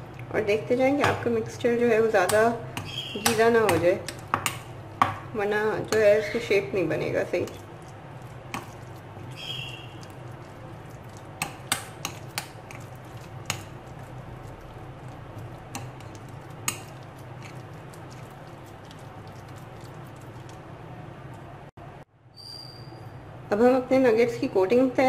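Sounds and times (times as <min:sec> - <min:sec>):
steady low hum: 0:00.0 - 0:22.1
hand squishing minced meat: 0:07.3 - 0:21.4.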